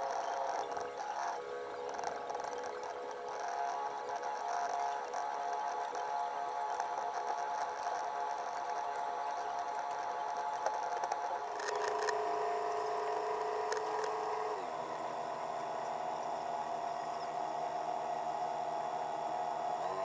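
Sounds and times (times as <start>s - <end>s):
boat engine high whine: 0.0s - 20.0s.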